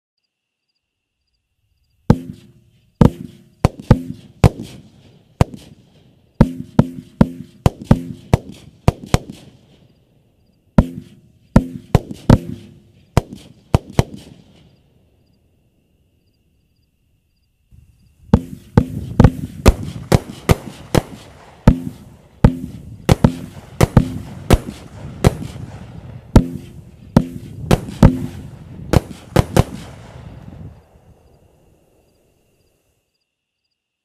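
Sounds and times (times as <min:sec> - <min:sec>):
firework cake bangs: 0:02.1 - 0:05.8, 0:06.4 - 0:09.5, 0:10.8 - 0:14.4, 0:18.3 - 0:30.3.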